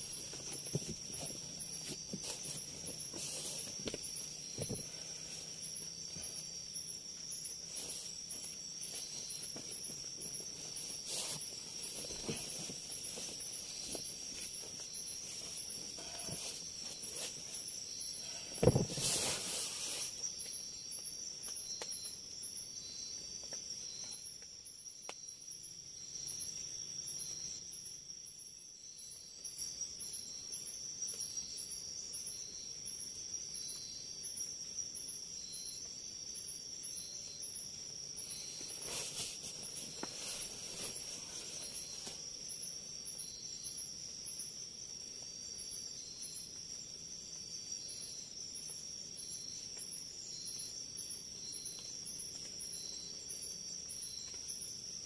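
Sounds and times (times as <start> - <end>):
soft rustles: 0.0 - 6.2, 7.4 - 20.3, 38.3 - 42.3
insects droning: 0.0 - 55.0
short high insect chirps: 0.0 - 55.0.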